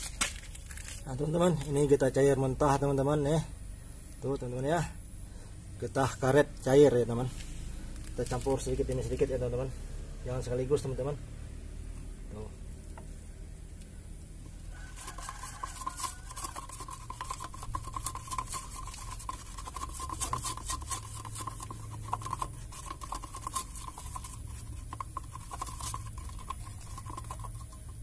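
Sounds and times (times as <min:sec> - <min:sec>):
wooden stick scraping in can: 0:14.4 - 0:28.0.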